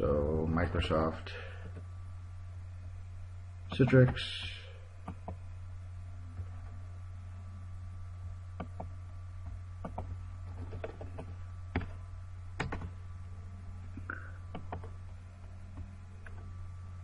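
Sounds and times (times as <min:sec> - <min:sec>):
low hum: 0:00.0 - 0:17.0
keyboard typing: 0:12.6 - 0:12.9, 0:14.5 - 0:14.9.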